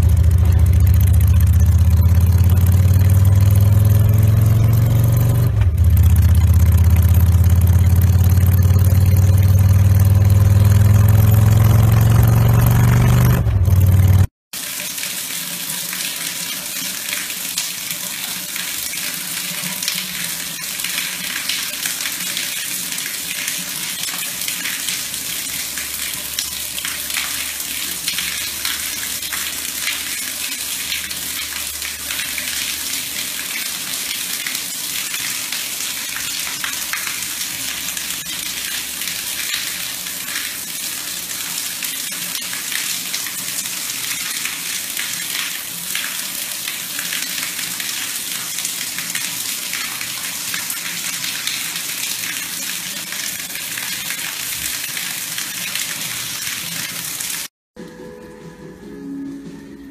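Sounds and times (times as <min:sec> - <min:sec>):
shower spray on tiled floor: 0:14.6 - 0:57.5.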